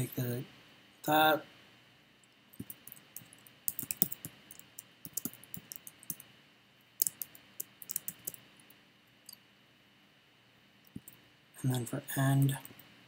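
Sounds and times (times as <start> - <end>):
keyboard typing: 2.6 - 6.2, 7.0 - 8.4.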